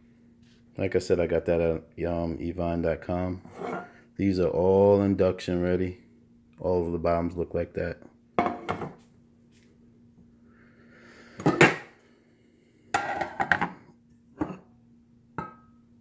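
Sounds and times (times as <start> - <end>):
faint steady hum: 0.0 - 16.0
pots and lids knocking and clinking: 11.4 - 11.9, 13.0 - 13.8, 14.4 - 14.6, 15.4 - 15.8.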